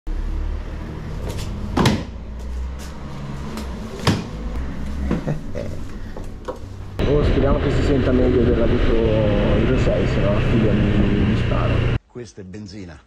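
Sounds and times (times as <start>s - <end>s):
low rumble: 6.8s - 12.0s.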